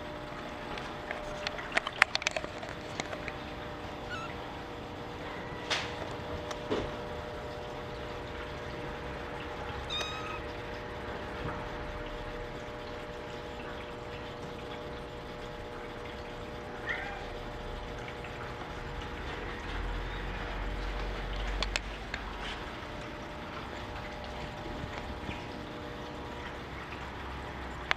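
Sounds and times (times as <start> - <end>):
background hiss and hum: 0.0 - 27.9
kitten mewing: 4.0 - 4.4, 9.9 - 10.5.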